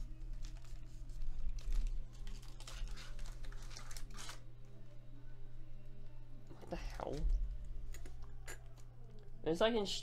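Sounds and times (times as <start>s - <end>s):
foil wrapper crinkling: 0.0s - 4.4s
steady low hum: 0.0s - 10.0s.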